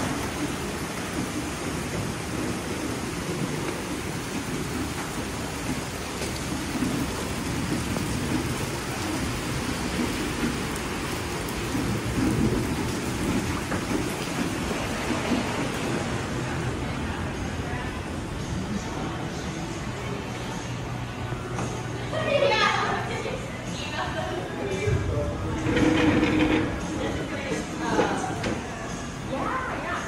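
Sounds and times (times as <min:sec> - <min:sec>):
rain falling steadily: 0:00.0 - 0:30.0
low rumble: 0:24.5 - 0:27.8.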